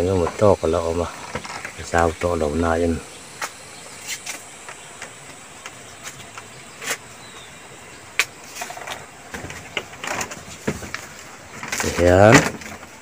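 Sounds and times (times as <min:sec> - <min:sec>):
outdoor hiss: 0:00.0 - 0:13.0.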